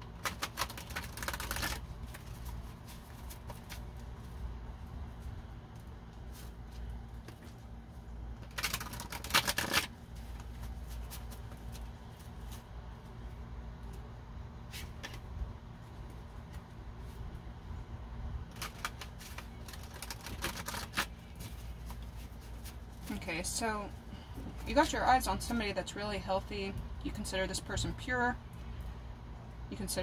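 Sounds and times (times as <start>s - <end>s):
cards being shuffled: 0.0s - 4.3s, 8.3s - 12.6s, 14.7s - 15.3s, 18.4s - 23.2s.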